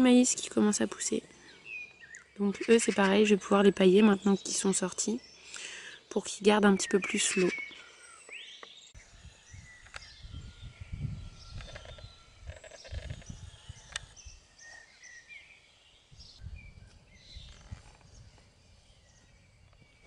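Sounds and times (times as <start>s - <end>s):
small birds chirping: 0.0s - 20.0s
wind rumble on microphone: 9.0s - 14.5s, 16.1s - 20.0s.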